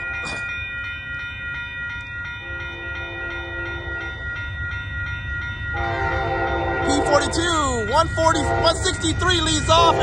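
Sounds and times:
distant train horn: 2.4 - 4.2, 5.8 - 7.5, 8.2 - 10.0.

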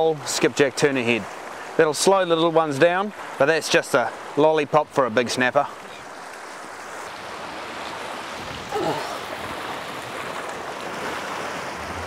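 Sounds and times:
surf washing on rocky shore: 0.0 - 12.0.

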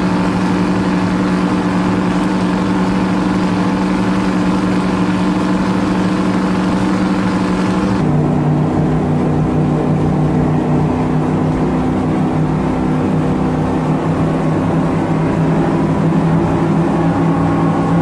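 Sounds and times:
boat motor running: 0.0 - 18.0.

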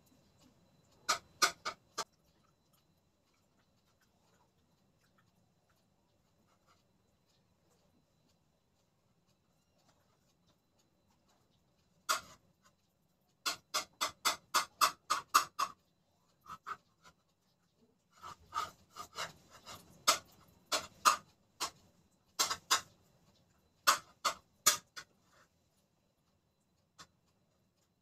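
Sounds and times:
spoon scraping plate: 12.0 - 12.4, 16.4 - 17.2, 18.1 - 21.8, 22.4 - 23.0.

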